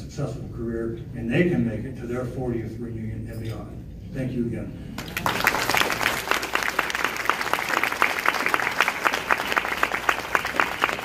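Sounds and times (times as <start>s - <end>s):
audience applauding: 5.0s - 11.0s
nearer sharp claps: 5.0s - 11.0s.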